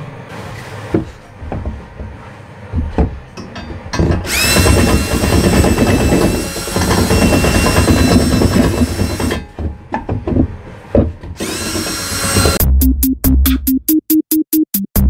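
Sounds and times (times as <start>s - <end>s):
drill knocking on plastic: 4.0s - 12.6s
cordless drill motor whine: 4.3s - 9.4s, 11.4s - 12.6s.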